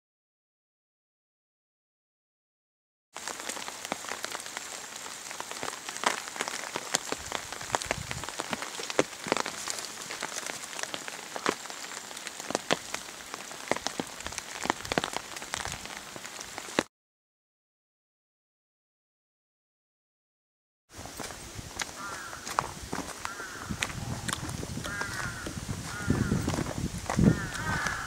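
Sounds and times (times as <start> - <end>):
rain on water: 3.2 - 16.9, 21.0 - 28.0.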